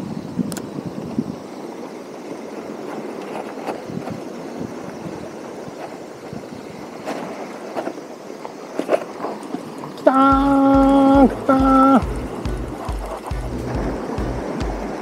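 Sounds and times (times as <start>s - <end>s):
sea noise: 0.0s - 15.0s
wind on microphone: 0.0s - 15.0s
faint ticks: 0.4s - 1.2s.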